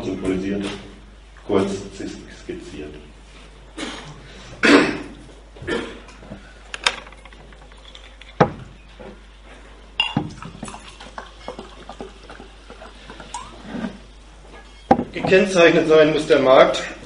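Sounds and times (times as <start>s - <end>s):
faint room noise: 0.0s - 17.0s
objects clicking and knocking: 6.7s - 8.7s.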